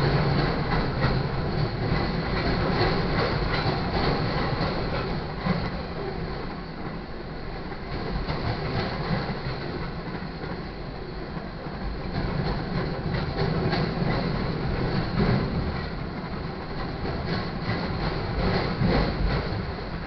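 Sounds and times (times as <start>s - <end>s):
wheels clicking over rail joints: 0.0s - 7.0s, 7.7s - 20.0s
steel wheels rumbling on rail: 0.0s - 20.0s.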